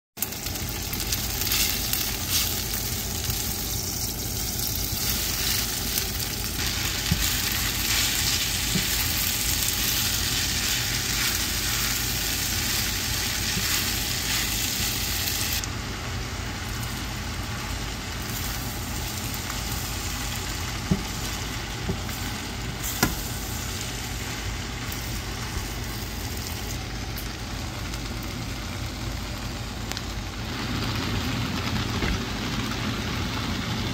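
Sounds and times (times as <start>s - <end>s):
noodles sizzling in a pan: 0.2s - 33.9s
spatula stirring: 1.4s - 15.6s.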